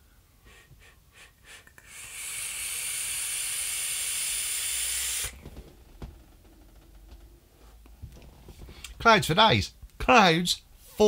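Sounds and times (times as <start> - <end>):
vaporiser coils hissing: 1.6 - 6.8.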